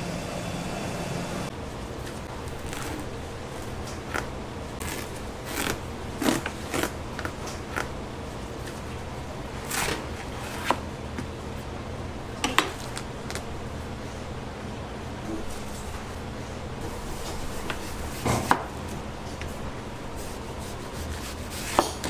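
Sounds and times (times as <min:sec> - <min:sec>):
low hum: 0:00.0 - 0:01.7.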